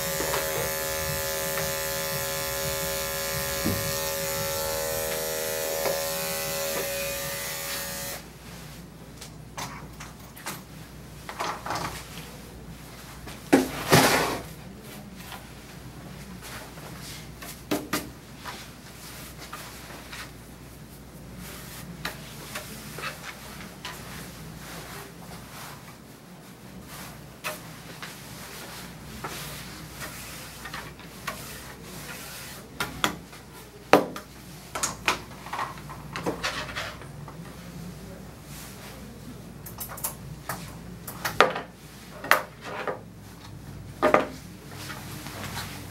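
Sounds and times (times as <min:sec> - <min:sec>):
knocks and thuds of tools: 0:03.4 - 0:04.0.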